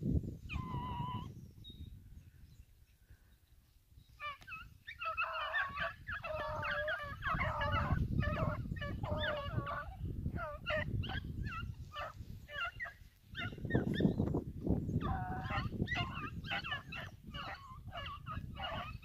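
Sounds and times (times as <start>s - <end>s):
dogs baying: 15.0s - 18.9s.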